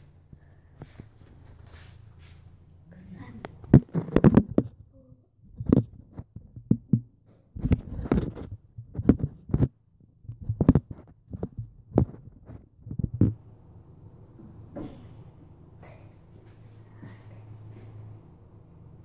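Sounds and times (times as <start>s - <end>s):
phone handling knocks and bumps: 3.6s - 4.8s.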